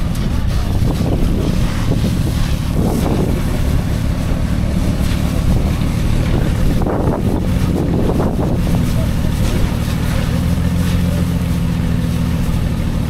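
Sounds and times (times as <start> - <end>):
vehicle engines idling: 0.0 - 13.0
wind noise on microphone: 0.0 - 13.0.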